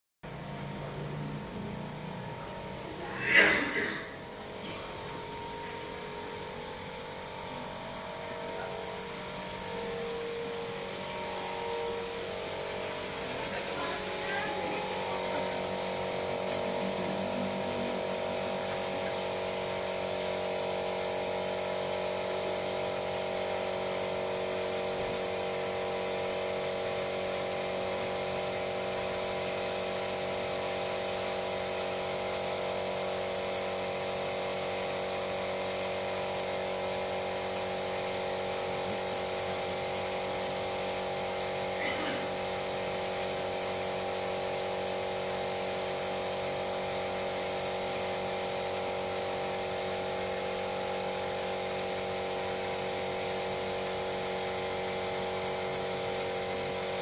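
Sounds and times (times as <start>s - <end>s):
small electric motor humming: 0.3s - 57.0s.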